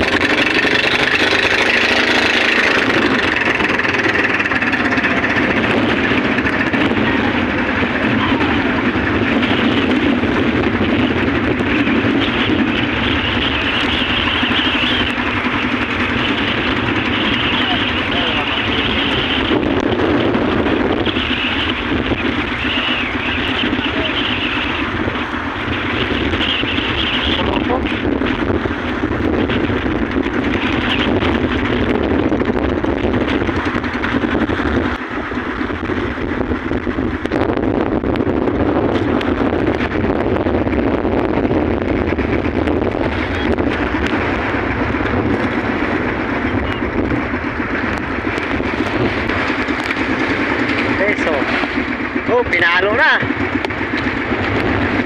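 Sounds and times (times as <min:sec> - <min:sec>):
boat engine running: 0:00.0 - 0:55.0
choppy waves: 0:00.0 - 0:55.0
wind buffeting microphone: 0:00.0 - 0:55.0
sea water splashing: 0:43.0 - 0:55.0.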